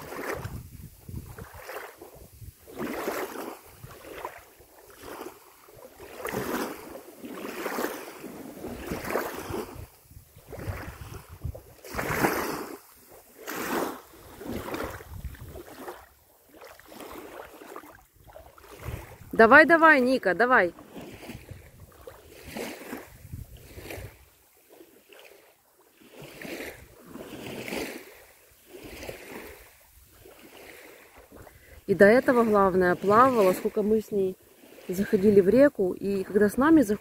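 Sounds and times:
wind rumble on microphone: 0.0s - 7.0s, 8.2s - 13.0s, 14.0s - 16.1s, 16.8s - 19.6s, 20.8s - 24.4s
small waves washing on shore: 0.0s - 37.0s.

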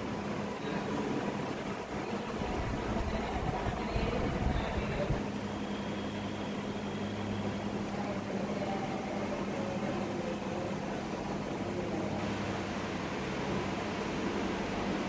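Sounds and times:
low machine hum: 0.0s - 15.0s
deep rumble: 2.4s - 5.2s.

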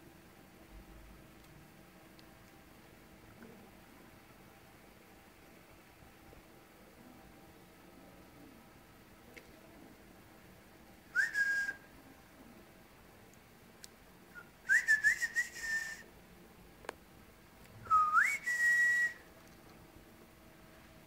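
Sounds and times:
person whistling rising notes: 11.2s - 11.8s, 17.9s - 19.2s.

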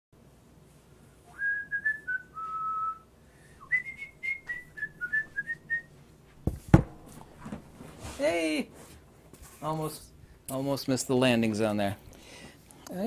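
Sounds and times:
person whistling a tune: 1.3s - 5.9s.

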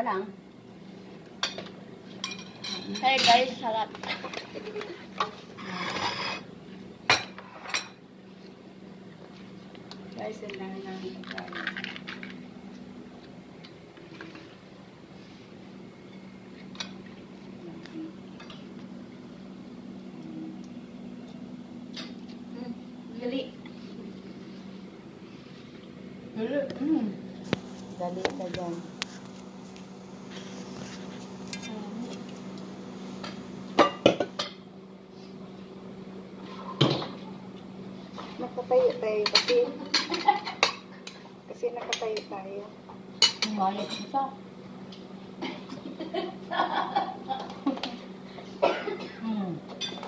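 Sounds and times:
steady low hum: 0.0s - 50.0s
dishes and cutlery clinking: 1.4s - 6.5s, 43.2s - 44.2s, 49.7s - 50.0s.

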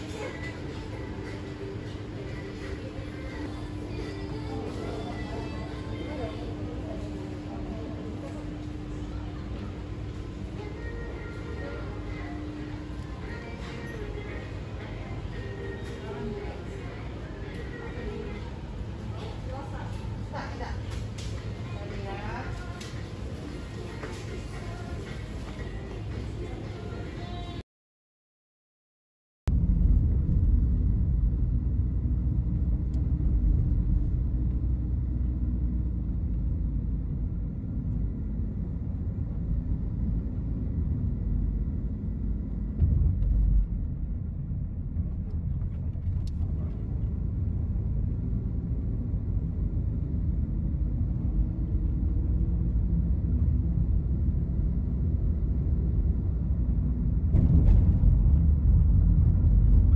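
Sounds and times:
road and engine noise in car: 30.3s - 59.9s.

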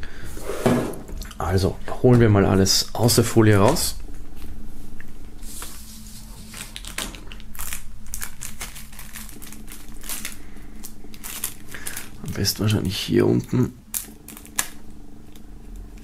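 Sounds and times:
plastic wrap crinkling: 5.6s - 16.0s.

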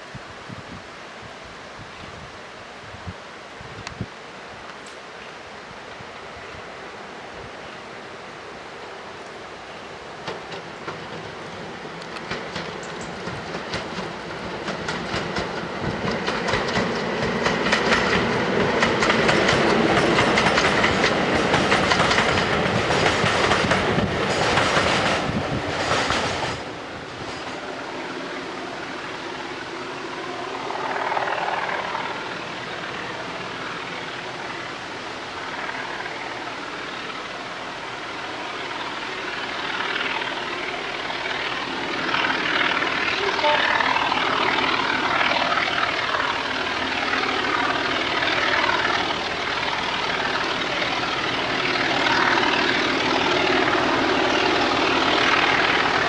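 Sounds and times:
diesel locomotive engine running: 9.5s - 56.0s
train wheels clicking over rail joints: 10.2s - 28.5s.

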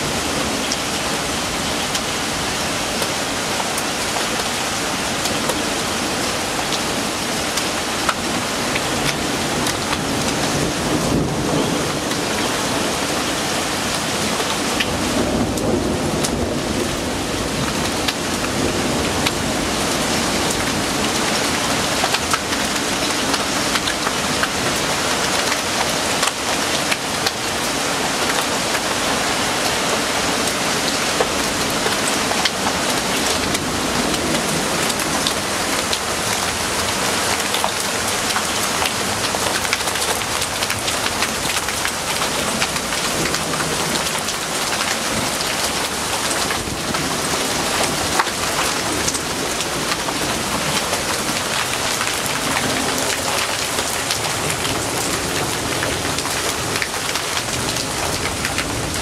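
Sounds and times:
heavy rain pouring: 0.0s - 59.0s
raindrops ticking: 17.7s - 24.8s.

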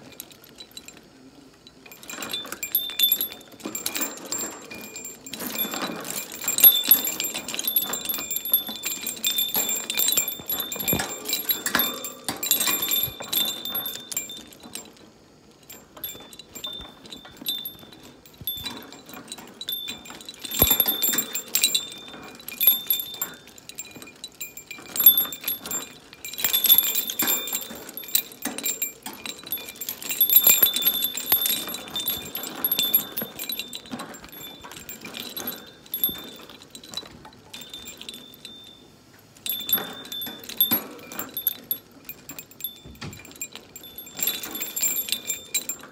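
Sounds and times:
metal cage toy jingling: 0.0s - 38.8s, 39.5s - 45.9s
toy beads clicking rattles: 1.9s - 15.0s, 15.6s - 37.0s.

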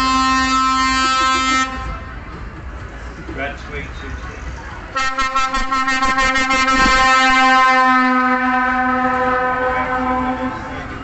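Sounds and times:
vehicle air horn blast: 0.0s - 2.0s, 5.0s - 10.6s.

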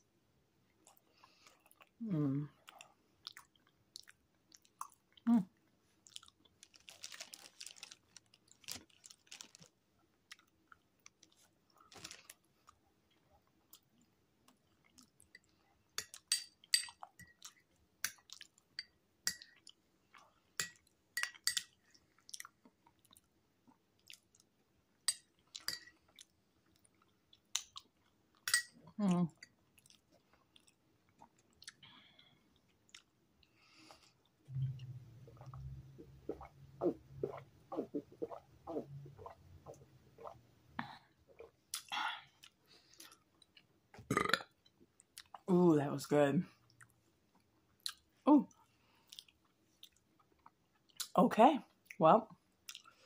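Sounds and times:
chewing food: 0.7s - 45.5s, 46.6s - 53.0s
wet mouth clicks and smacks: 41.7s - 42.6s.

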